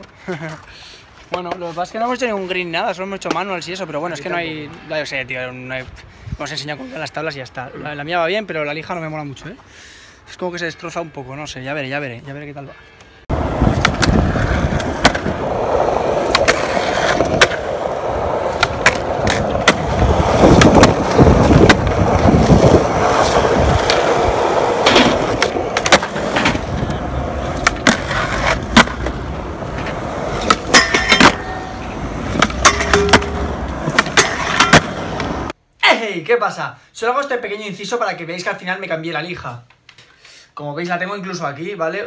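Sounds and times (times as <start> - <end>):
skateboard clacking on ground: 13.3 - 35.5
skateboard wheels rolling on concrete: 13.3 - 35.6.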